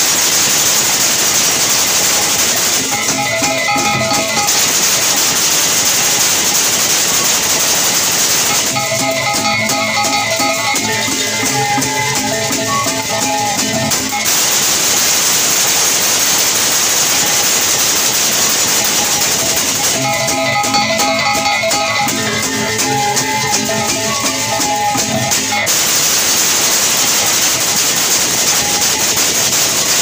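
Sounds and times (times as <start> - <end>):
rattling cymbal shimmer: 0.0 - 30.0
kettle gongs struck in melody: 1.9 - 15.3, 16.6 - 28.4
dense rushing hiss: 14.2 - 20.0.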